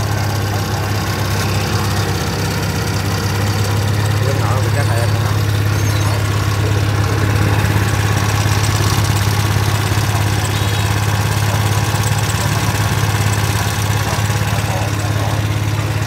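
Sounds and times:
generator engine humming: 0.0s - 16.0s.

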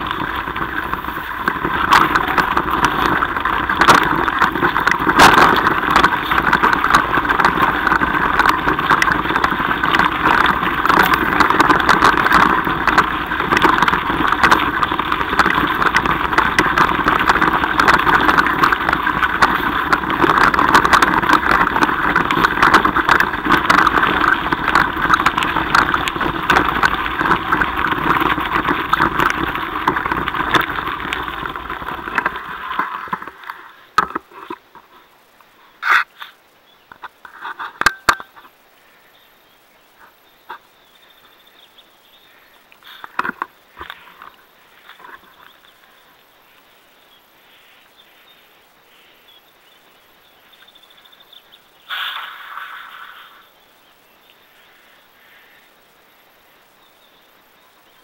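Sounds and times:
bike clicks and knocks: 0.0s - 34.8s, 36.9s - 38.5s
bike tyres rushing on gravel: 0.0s - 35.1s, 40.0s - 47.0s, 48.9s - 55.6s.

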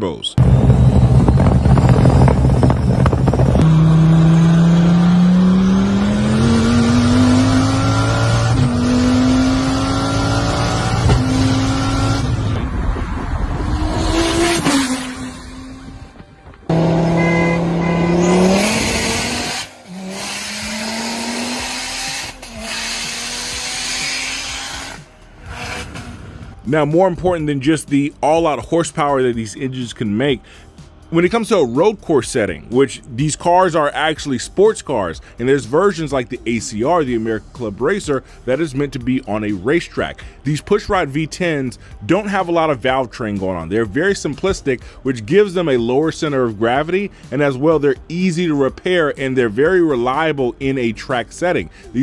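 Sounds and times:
sports car engine at full throttle: 0.4s - 26.7s.

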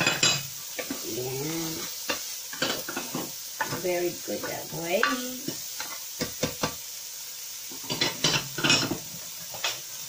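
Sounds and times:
spatula knocking on frying pan: 6.2s - 6.8s
spatula scraping frying pan: 7.7s - 9.9s.

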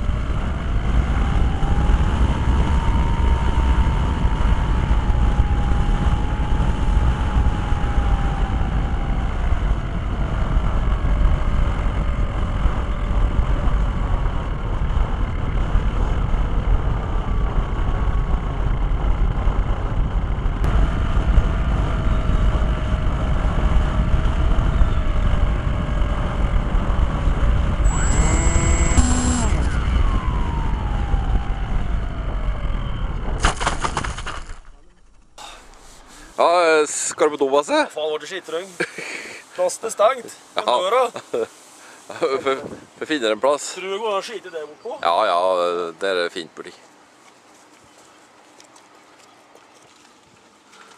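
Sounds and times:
wind rushing over microphone: 0.0s - 37.6s, 39.1s - 44.2s
motor and propeller whine: 0.0s - 37.8s.

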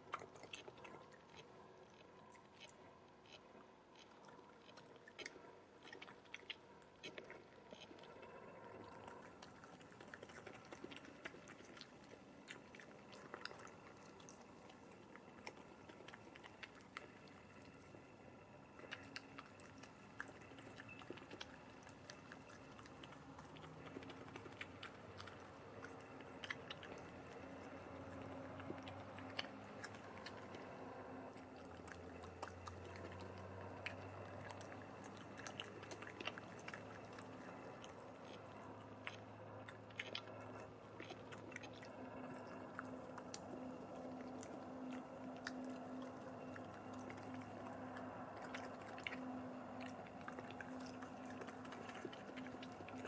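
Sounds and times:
badger chewing and crunching: 0.0s - 53.0s
faint low hum: 0.0s - 53.0s.

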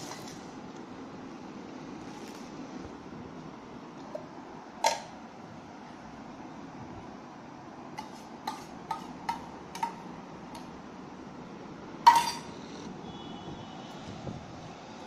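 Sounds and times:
cutlery clinking on plate: 12.1s - 12.5s.

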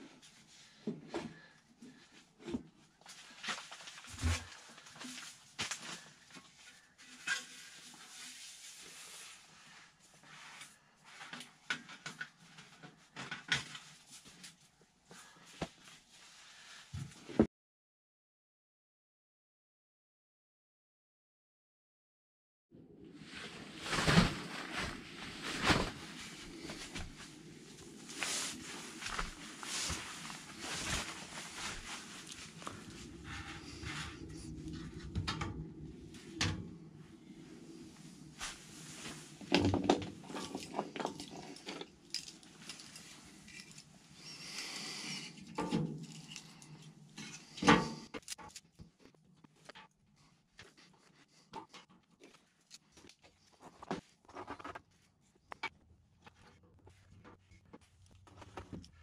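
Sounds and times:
rustling: 23.2s - 35.1s, 36.0s - 45.4s.

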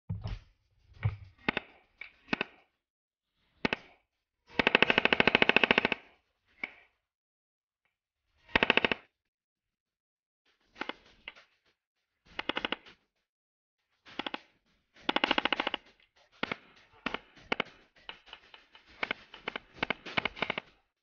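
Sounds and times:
automatic rifle firing bursts: 4.6s - 6.0s, 15.1s - 15.8s.

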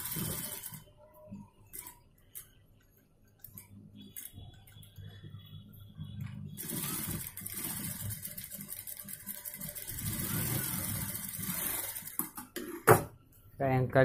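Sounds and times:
sewing machine running: 0.0s - 0.9s, 6.5s - 12.4s.

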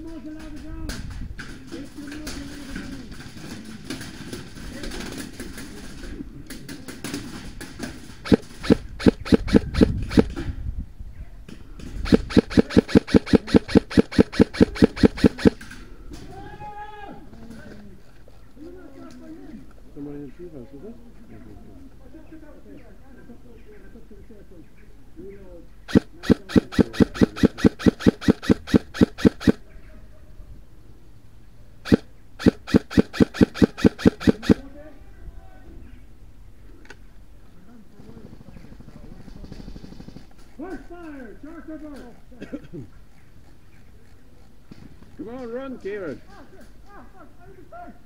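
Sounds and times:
airsoft rifle shots: 8.2s - 10.5s, 12.0s - 15.7s, 25.9s - 29.6s, 31.8s - 34.7s.

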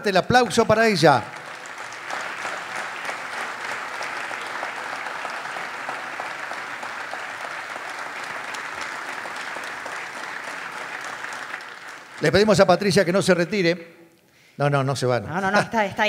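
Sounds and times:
audience applause: 0.6s - 13.2s.

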